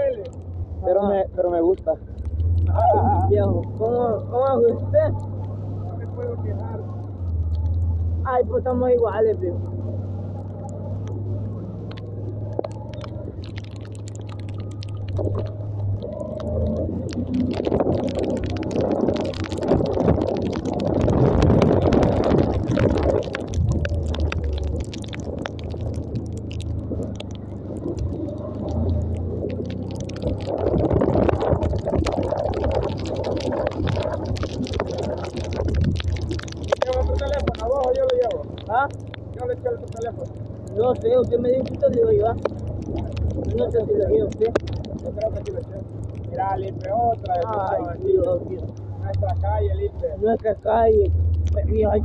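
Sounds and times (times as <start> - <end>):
wind rushing over microphone: 9.6 - 50.0.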